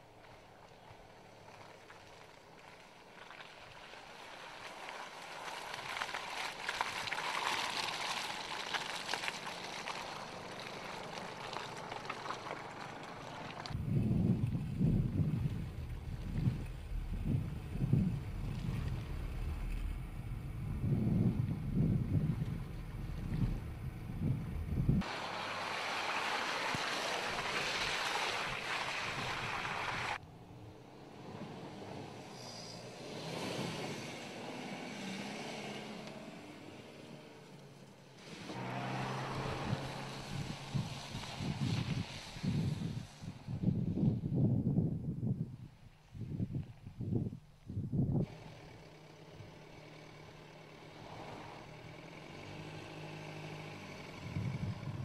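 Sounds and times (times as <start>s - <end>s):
tyres crunching over dirt and stones: 0.2s - 29.0s
rushing noise of car passing: 4.3s - 37.6s, 38.2s - 44.2s, 48.2s - 55.0s
wind buffeting microphone: 13.7s - 25.1s, 39.1s - 48.3s, 54.1s - 55.0s.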